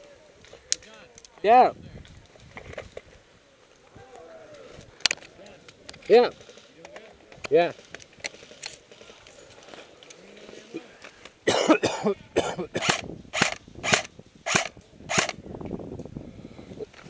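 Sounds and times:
airsoft rifle shots: 0:12.8 - 0:15.4.

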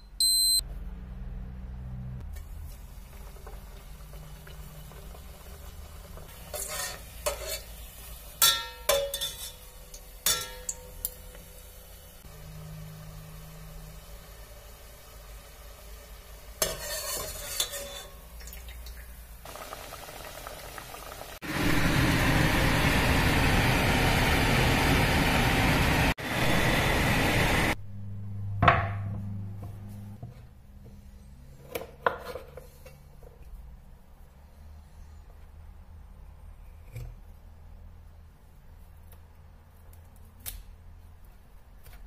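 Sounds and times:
dough deep-frying in hot oil: 0:02.2 - 0:27.8.

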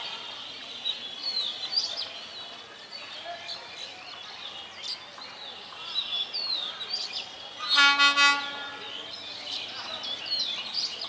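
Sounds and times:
birds chirping: 0:00.0 - 0:11.0
locomotive horn blast: 0:07.7 - 0:08.9.

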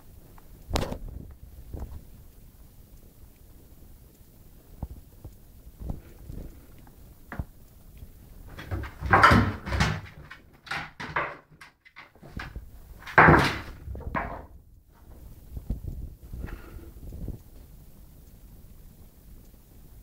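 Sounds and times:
short knocks and clicks: 0:08.5 - 0:14.5.

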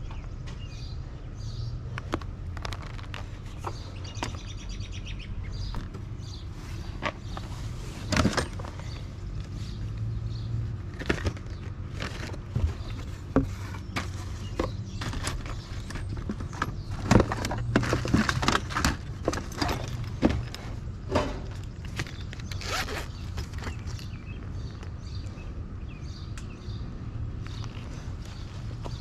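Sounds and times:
tools clattering in a box: 0:08.0 - 0:09.0, 0:14.0 - 0:22.3.

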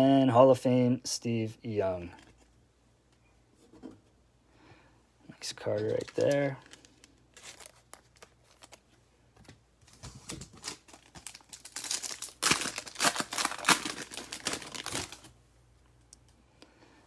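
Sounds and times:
foil wrapper crinkling: 0:05.6 - 0:08.9, 0:10.0 - 0:15.3.

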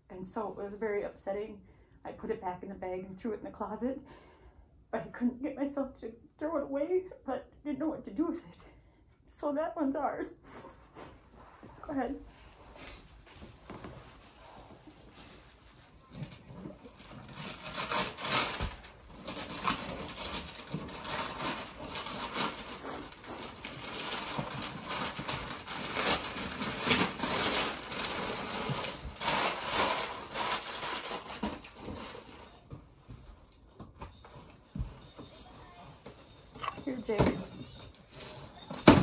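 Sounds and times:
wrapping paper tearing: 0:16.0 - 0:32.6.

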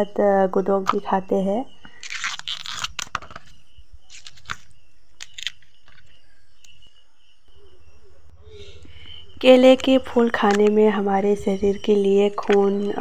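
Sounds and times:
banana flower crackling as peeled: 0:01.9 - 0:03.4, 0:04.1 - 0:06.1.

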